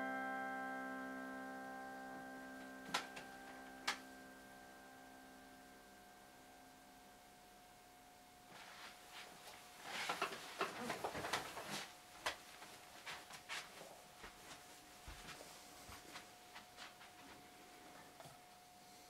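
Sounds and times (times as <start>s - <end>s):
faint steady whine: 0.0s - 19.0s
clothing rustling: 8.5s - 17.4s.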